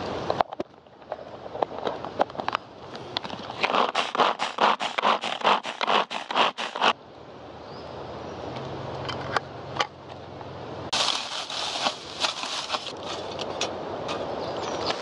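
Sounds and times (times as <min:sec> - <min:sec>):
dry bracken crackling and rustling: 0:00.0 - 0:07.0, 0:10.9 - 0:15.0
cord food chopper whizzing: 0:03.6 - 0:07.0.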